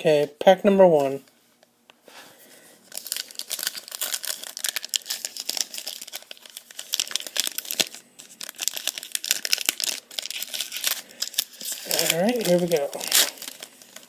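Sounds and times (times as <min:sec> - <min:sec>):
foil wrapper crinkling and tearing: 0:02.9 - 0:14.0.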